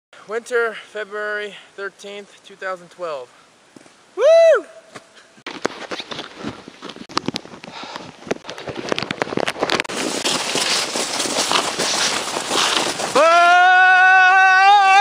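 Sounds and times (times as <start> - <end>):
snow crunching: 5.0 - 15.0
sled sliding over snow: 8.4 - 15.0.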